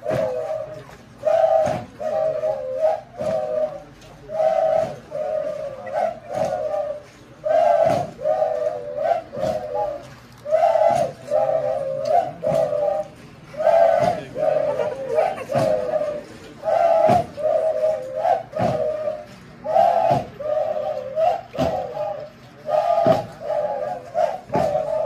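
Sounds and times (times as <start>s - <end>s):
breathy flute-like phrases: 0.0s - 25.0s
low dance beat thump: 16.8s - 19.2s, 22.8s - 25.0s.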